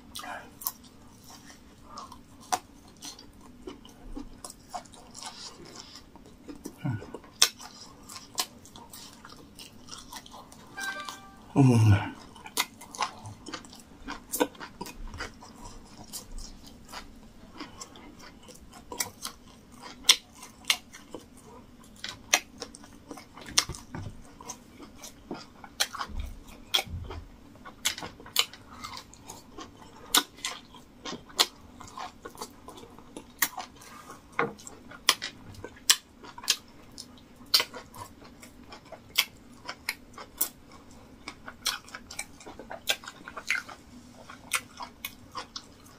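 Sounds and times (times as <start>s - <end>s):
man chewing food: 0.0s - 45.9s.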